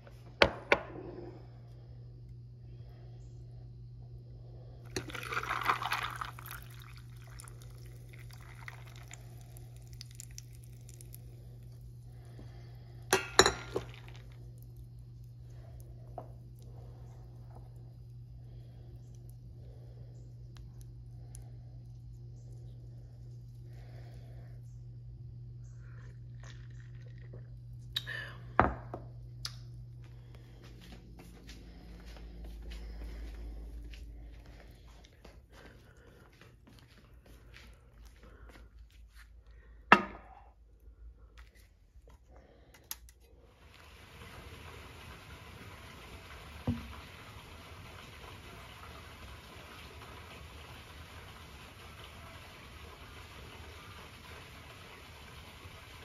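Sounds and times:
steady low hum: 0:00.0 - 0:49.0
coffee pouring over ice: 0:04.9 - 0:11.9, 0:13.2 - 0:14.9, 0:25.9 - 0:27.6.

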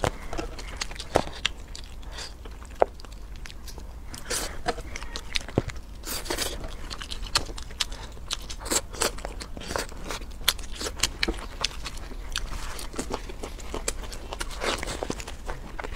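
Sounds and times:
wet crunchy chewing: 0:00.0 - 0:15.9.

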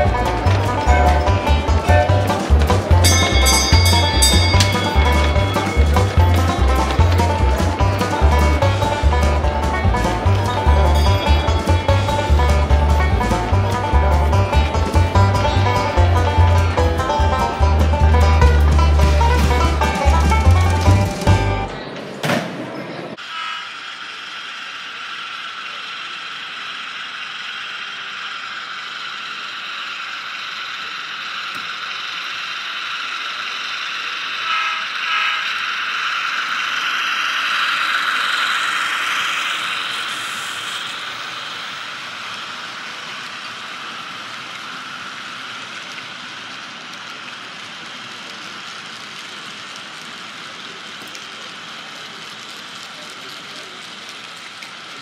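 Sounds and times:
model train motors whirring: 0:00.0 - 0:55.0.

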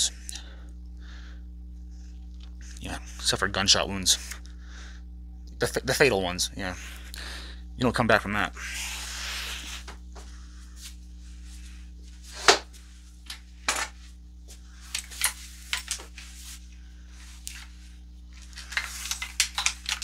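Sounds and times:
gun handling clicks and knocks: 0:14.9 - 0:16.1, 0:18.7 - 0:20.0.

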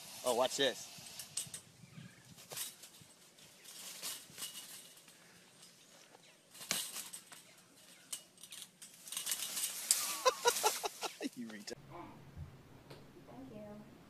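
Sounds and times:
chain-link fence clinking: 0:00.3 - 0:11.3
claws catching on wire mesh: 0:02.3 - 0:05.7, 0:06.5 - 0:11.1.

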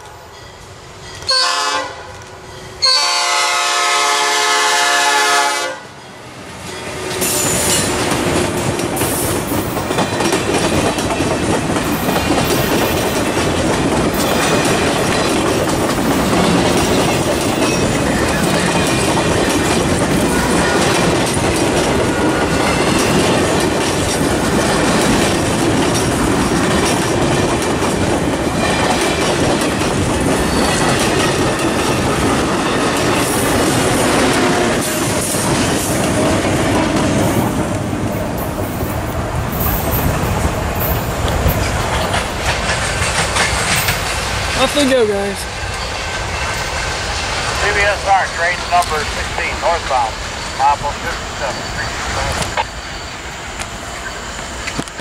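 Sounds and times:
train wheels rumbling on rail: 0:00.0 - 0:55.0
locomotive air horn blasts: 0:01.3 - 0:02.1, 0:02.8 - 0:05.9
clickety-clack of rail joints: 0:06.7 - 0:45.0, 0:53.6 - 0:55.0.

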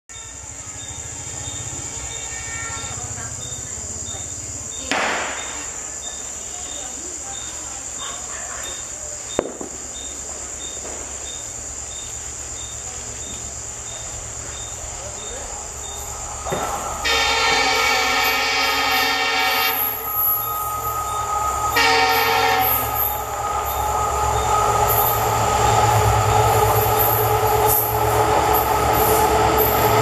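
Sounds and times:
insects chirping: 0:00.1 - 0:30.0
sharp knock: 0:04.9 - 0:05.5
locomotive air horn: 0:16.5 - 0:27.1.

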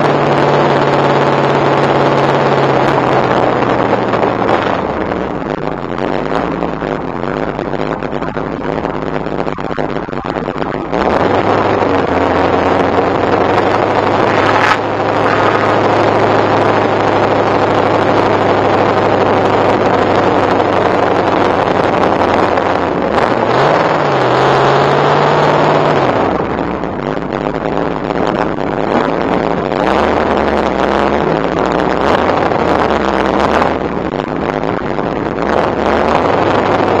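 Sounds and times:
car engine running: 0:00.0 - 0:37.0
wind noise: 0:00.0 - 0:37.0.

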